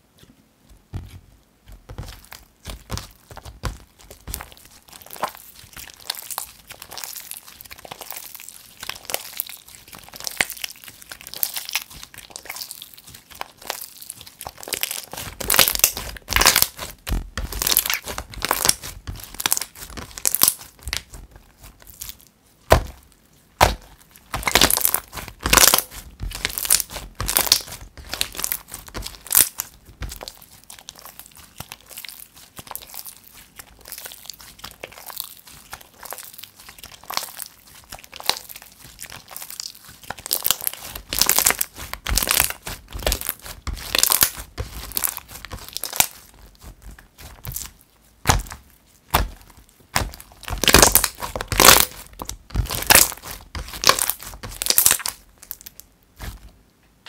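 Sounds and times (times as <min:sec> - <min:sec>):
slime crackling and popping: 0:01.0 - 0:56.6.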